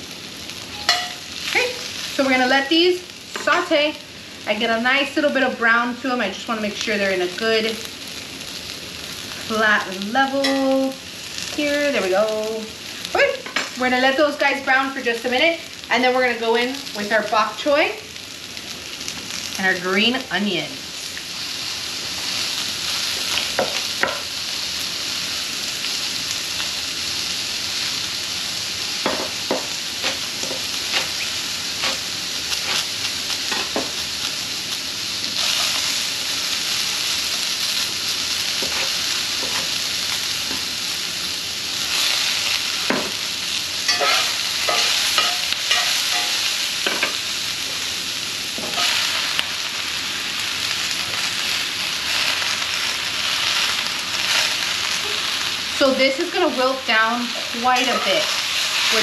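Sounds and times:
mushrooms sizzling in oil: 0.0s - 59.0s.

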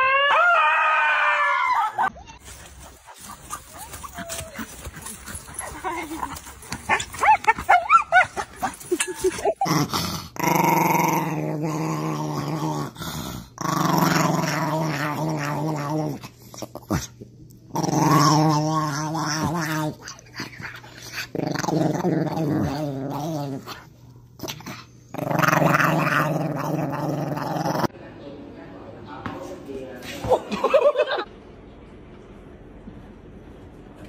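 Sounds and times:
small dog growling: 2.8s - 27.9s.

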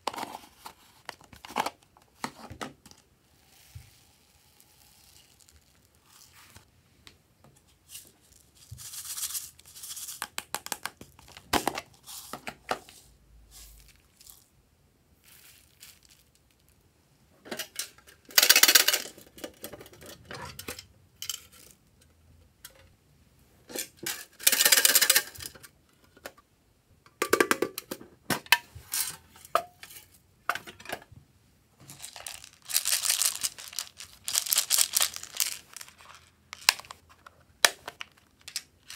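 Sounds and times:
foam beads rattling and pouring: 3.3s - 6.6s, 13.5s - 14.5s, 15.2s - 16.7s, 31.8s - 36.7s.

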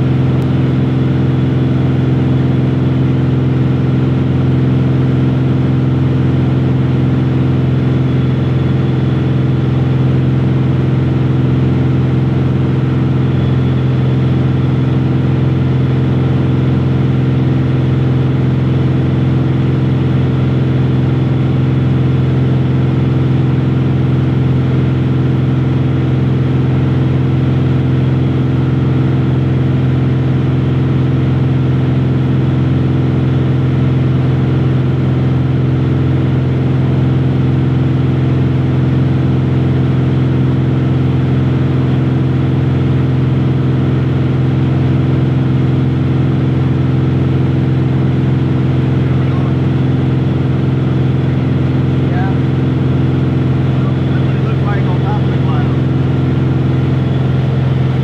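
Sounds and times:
airplane cabin engine drone: 0.0s - 58.0s.

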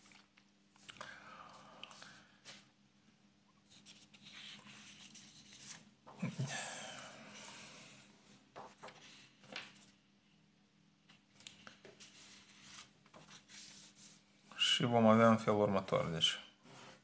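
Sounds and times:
paper rustling: 3.7s - 6.3s, 8.6s - 10.0s, 11.1s - 14.2s.

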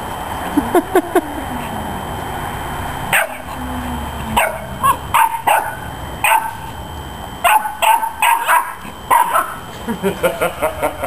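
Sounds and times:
puppy yapping: 7.4s - 9.6s.

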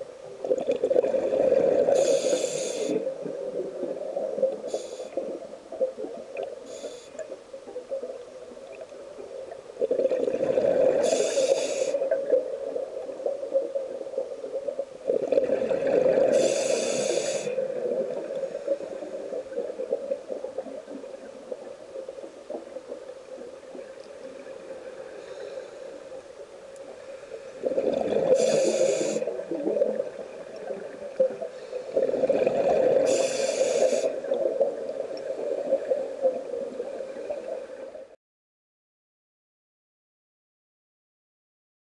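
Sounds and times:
exhaled air bubbling: 0.0s - 25.4s, 26.8s - 38.0s
regulator hiss: 1.9s - 3.1s, 4.6s - 5.4s, 6.6s - 7.3s, 11.0s - 12.2s, 16.3s - 17.8s, 28.3s - 29.5s, 33.0s - 34.3s.

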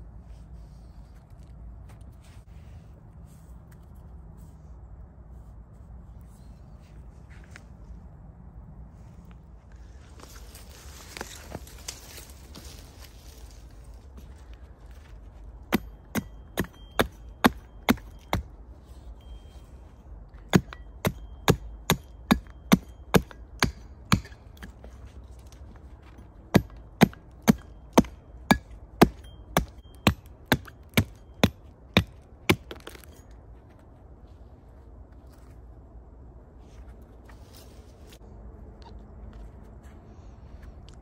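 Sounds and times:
hatchet chopping wood: 15.7s - 18.5s, 20.4s - 25.0s, 26.5s - 33.1s.

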